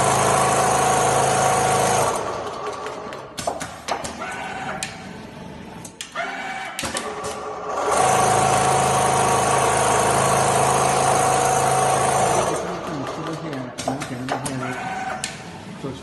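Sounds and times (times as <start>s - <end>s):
sewing machine running hum: 0.0s - 3.2s, 6.9s - 13.5s
sewing machine clicks and whirs: 0.0s - 15.9s.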